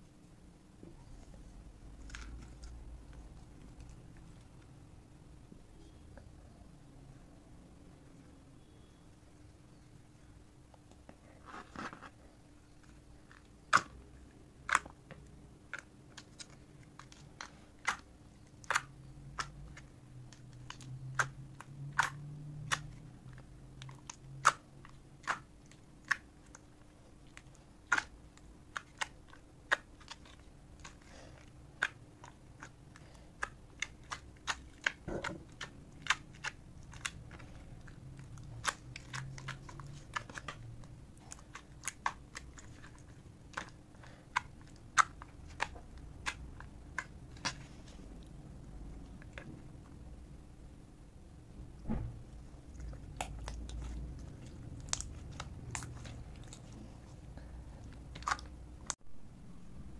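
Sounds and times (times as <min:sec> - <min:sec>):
slime squishing: 0:11.2 - 0:50.1, 0:52.1 - 0:59.0.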